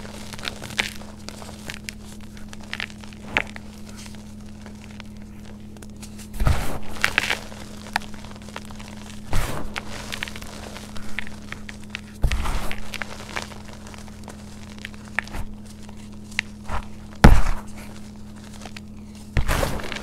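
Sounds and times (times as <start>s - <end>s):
hands crumbling clumpy powder: 0.0s - 20.0s
heavier thump: 16.7s - 17.7s.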